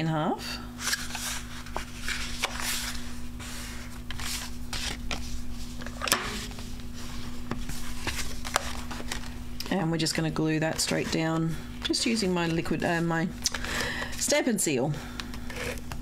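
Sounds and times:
steady low hum: 0.0s - 16.0s
cardstock sliding and rustling: 0.8s - 9.4s.

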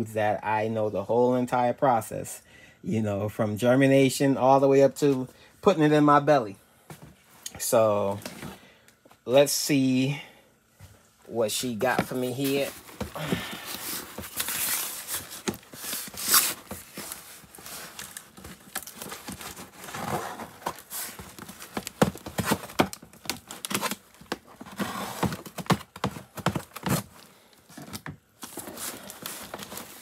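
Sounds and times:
rustling: 11.4s - 30.0s
cardboard knocking against plastic: 18.4s - 28.7s.

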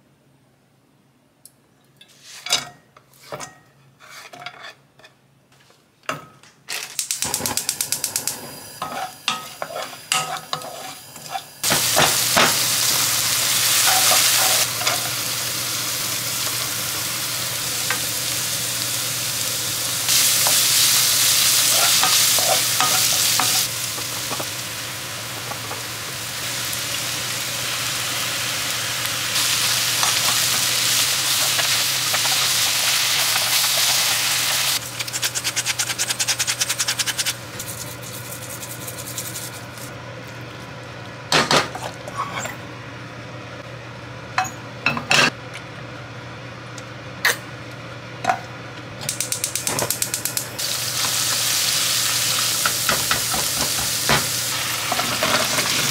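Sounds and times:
vegetables sizzling in a pan: 7.3s - 35.3s, 50.5s - 55.9s.

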